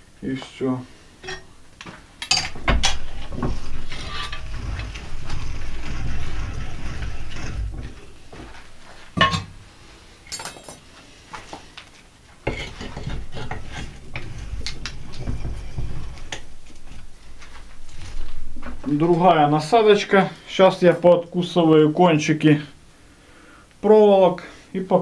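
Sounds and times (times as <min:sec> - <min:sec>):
low rubbing and rumbling: 0:01.4 - 0:10.0, 0:12.5 - 0:20.9
metal parts clanking: 0:02.2 - 0:09.6.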